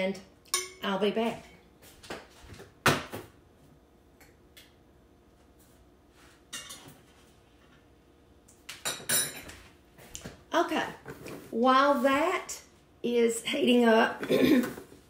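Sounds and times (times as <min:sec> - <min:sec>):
kitchen knocks and clunks: 0:02.5 - 0:03.4.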